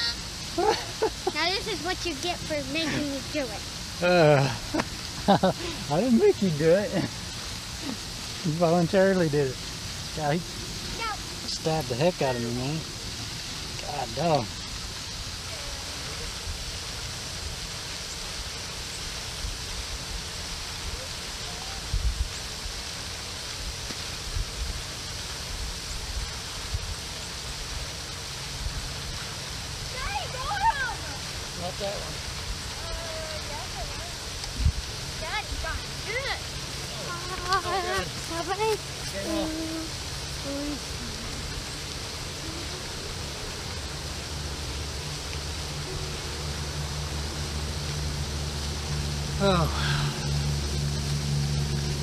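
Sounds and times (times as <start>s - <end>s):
outdoor hiss: 0.0s - 52.0s
steady rushing noise: 0.0s - 52.0s
wind buffeting microphone: 32.4s - 36.0s
low rumble: 39.6s - 52.0s.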